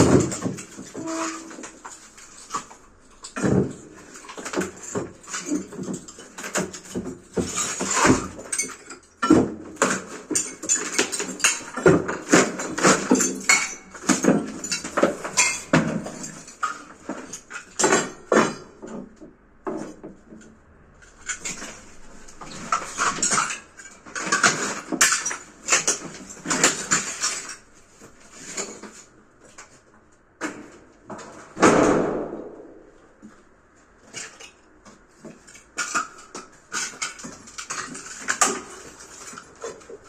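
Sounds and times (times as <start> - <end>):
crash of falling tile pieces: 0.0 - 18.7, 21.2 - 27.6, 35.5 - 40.0.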